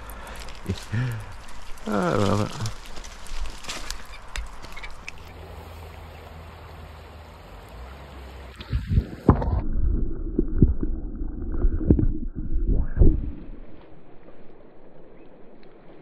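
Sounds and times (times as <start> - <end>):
creek water running: 0.0 - 12.0
low dull thumps and knocks: 8.7 - 13.4.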